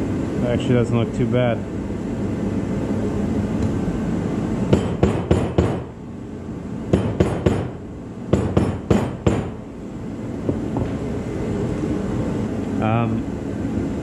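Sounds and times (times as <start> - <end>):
hammer tapping: 4.7 - 5.8, 6.9 - 9.5.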